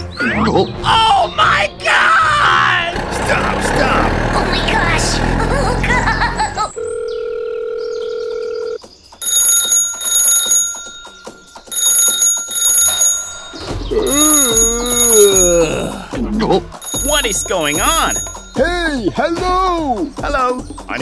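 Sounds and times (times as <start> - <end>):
phone ringing: 6.7 - 15.9, 16.8 - 18.7.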